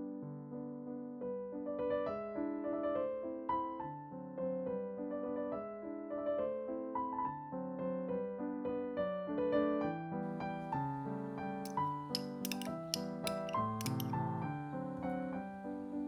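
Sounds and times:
soft piano music: 0:00.0 - 0:16.0.

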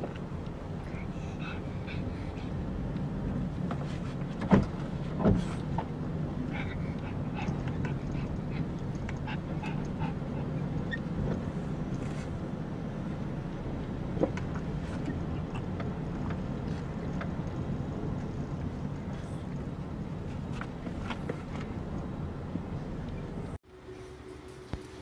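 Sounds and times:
low rumble inside car: 0:00.0 - 0:23.6
dogs panting: 0:00.7 - 0:03.0, 0:06.4 - 0:11.4.

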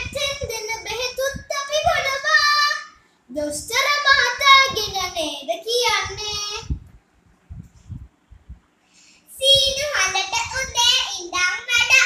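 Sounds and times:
child singing: 0:09.4 - 0:12.0.

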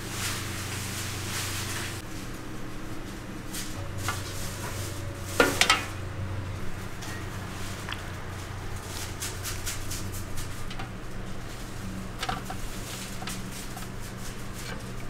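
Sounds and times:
steady low hum: 0:00.0 - 0:15.0
utensils clinking against pans: 0:03.7 - 0:06.0.

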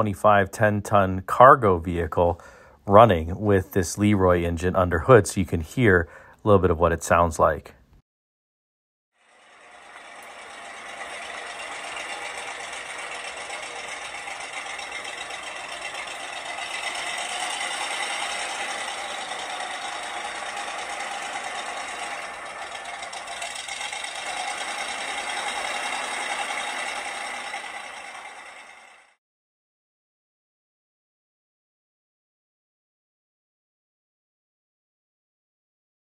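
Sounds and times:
truck engine running: 0:09.5 - 0:29.2.

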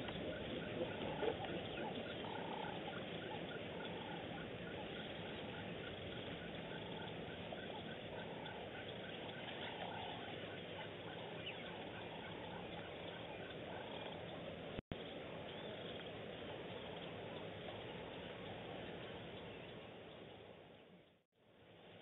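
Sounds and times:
longer lower animal call: 0:00.0 - 0:14.2
steady hiss: 0:00.0 - 0:20.8.

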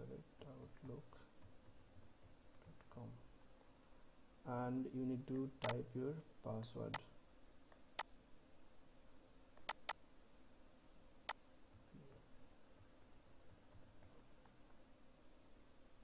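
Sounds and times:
typing on computer keyboard: 0:09.6 - 0:10.0, 0:12.8 - 0:14.6.

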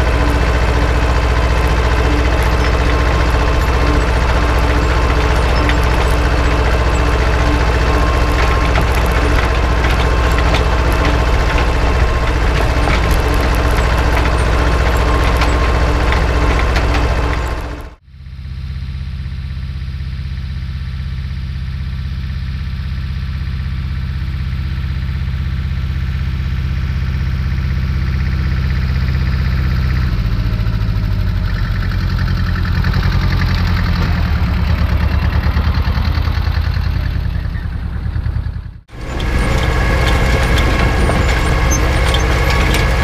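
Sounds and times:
seed drill rattling and clicking: 0:00.0 - 0:17.9, 0:38.9 - 0:43.0
tractor engine running: 0:00.0 - 0:43.0.

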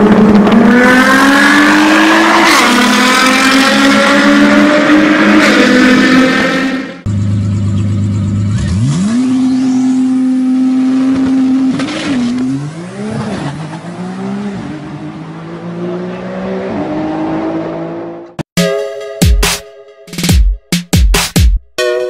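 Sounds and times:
car engine revving through upshifts: 0:00.0 - 0:07.0, 0:08.5 - 0:18.4.

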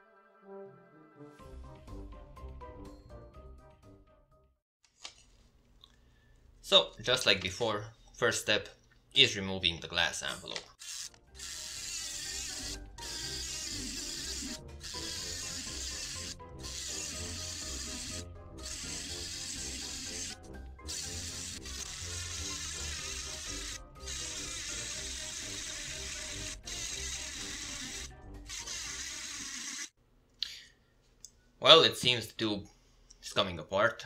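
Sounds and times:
rotary tool grinding glass: 0:10.8 - 0:30.0.

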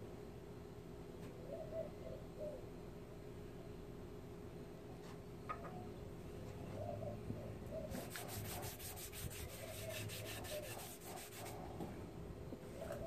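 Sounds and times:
cloth rubbing on wooden board: 0:08.0 - 0:11.6.

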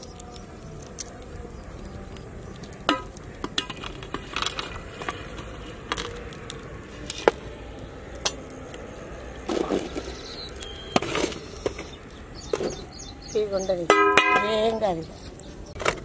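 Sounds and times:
metal scrape: 0:02.8 - 0:06.3, 0:09.4 - 0:10.2, 0:11.0 - 0:12.8
metal pot and lid clinking: 0:13.9 - 0:14.7.

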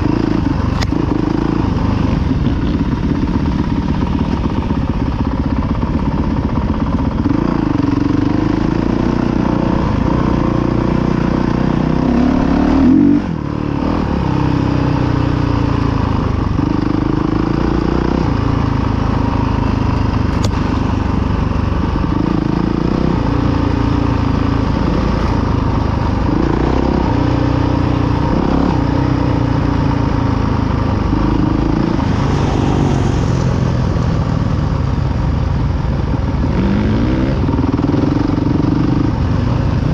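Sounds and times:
dirt bike engine revving: 0:07.1 - 0:15.8, 0:21.8 - 0:35.1, 0:36.4 - 0:39.9.

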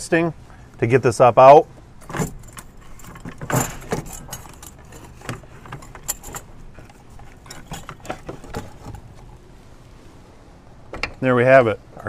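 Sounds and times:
metal parts clinking and knocking: 0:02.0 - 0:09.4.

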